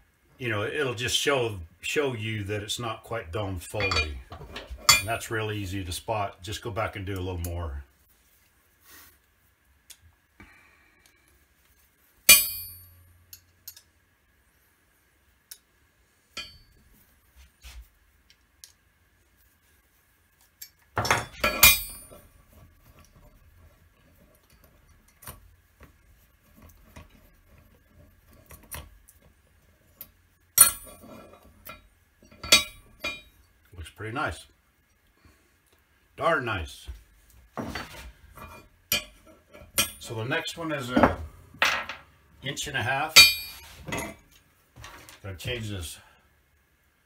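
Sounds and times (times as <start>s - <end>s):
metal dies clinking on anvil: 3.8s - 5.2s, 12.3s - 12.9s, 16.4s - 16.7s, 21.0s - 22.2s, 30.6s - 33.4s, 37.8s - 40.1s, 43.2s - 44.2s.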